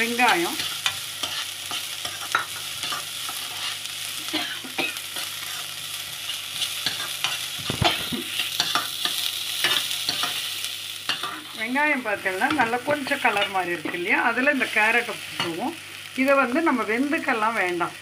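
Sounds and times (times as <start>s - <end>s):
onions sizzling in hot oil: 0.0s - 18.0s
spatula scraping pan: 0.2s - 11.7s.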